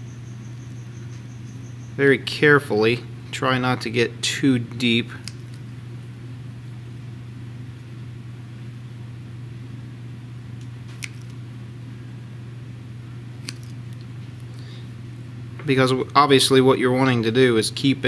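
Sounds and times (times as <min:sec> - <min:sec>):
steady low hum: 0:00.0 - 0:18.0
side cutters snipping: 0:05.0 - 0:05.7, 0:10.6 - 0:11.4, 0:13.4 - 0:14.7.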